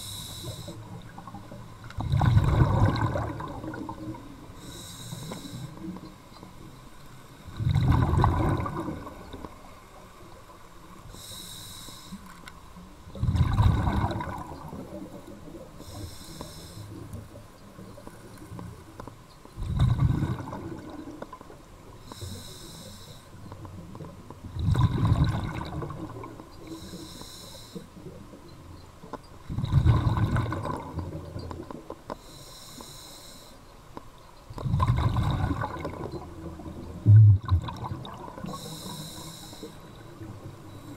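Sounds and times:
regulator inhale hiss: 0.0s - 1.0s, 4.6s - 6.0s, 11.0s - 12.4s, 15.8s - 17.2s, 22.0s - 23.5s, 26.6s - 28.0s, 32.1s - 33.7s, 38.4s - 40.9s
exhaled bubbles underwater: 0.0s - 6.0s, 7.4s - 10.1s, 13.1s - 16.0s, 19.6s - 21.6s, 23.6s - 26.9s, 29.4s - 31.9s, 34.6s - 40.9s.

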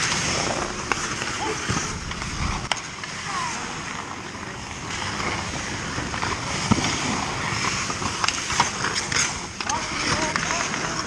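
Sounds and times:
hockey stick clacks: 0.0s - 3.2s, 3.9s - 11.0s
skates hissing on ice: 0.0s - 11.0s
arena ambience: 0.4s - 5.8s.

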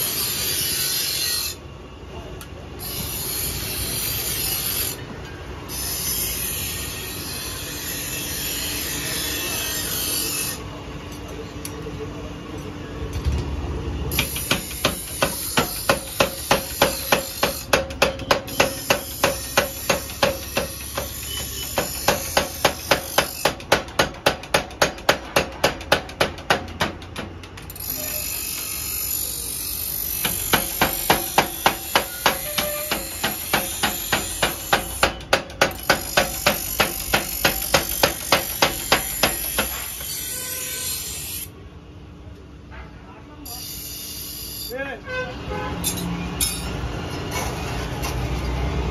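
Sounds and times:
power hammer striking hot metal: 14.1s - 28.8s, 29.9s - 40.5s.

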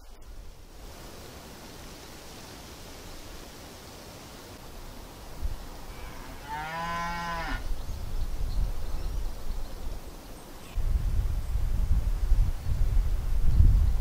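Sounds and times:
cow mooing: 6.0s - 7.6s
wind rumbling on microphone: 7.5s - 14.0s.

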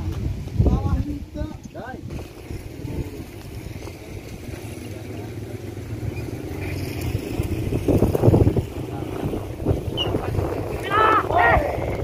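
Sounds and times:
faint voices: 2.5s - 12.0s.

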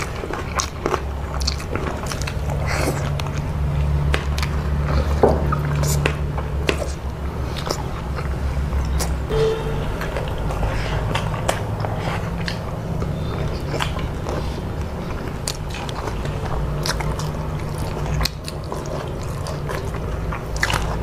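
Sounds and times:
people chewing food: 0.0s - 9.2s, 12.2s - 21.0s
steady low hum: 9.2s - 14.9s.

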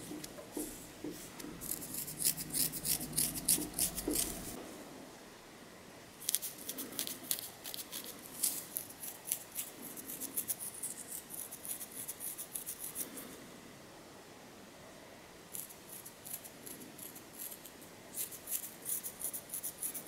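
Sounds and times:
fingernails scratching scalp: 1.6s - 4.6s, 6.2s - 13.2s, 15.5s - 20.0s.

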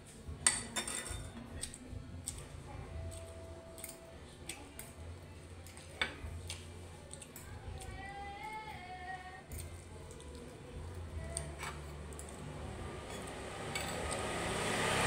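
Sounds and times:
faint background music: 0.0s - 15.0s
cutlery clinking on plate: 0.4s - 1.8s, 13.1s - 14.1s.

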